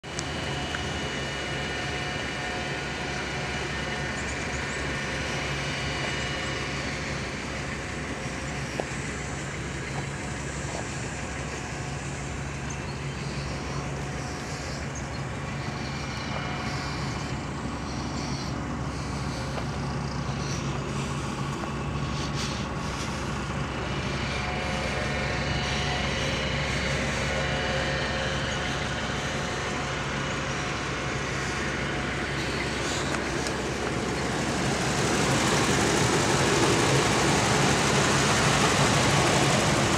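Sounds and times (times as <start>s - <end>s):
truck engine idling: 0.0s - 39.9s.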